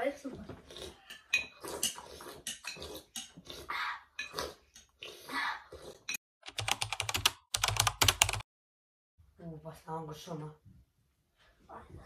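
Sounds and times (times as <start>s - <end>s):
people slurping: 0.6s - 6.2s.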